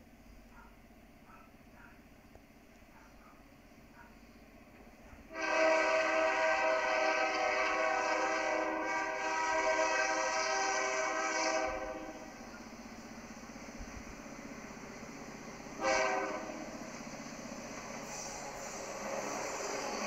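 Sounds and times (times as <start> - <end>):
train running noise: 0.0 - 20.0
locomotive air horn blasts: 5.3 - 12.4, 15.8 - 16.7.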